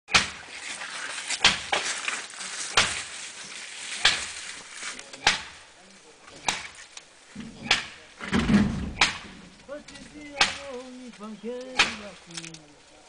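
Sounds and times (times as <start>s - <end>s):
axe chopping tree trunk: 0.1s - 0.5s, 1.3s - 2.1s, 2.7s - 3.1s, 4.0s - 4.4s, 5.0s - 5.6s, 6.3s - 6.8s, 7.5s - 9.4s, 10.2s - 10.9s, 11.7s - 12.2s.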